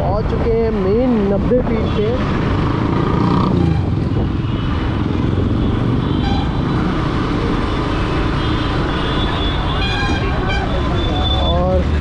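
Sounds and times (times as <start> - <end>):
wind noise: 1.2 - 6.4
vehicle horn toot: 6.1 - 6.6.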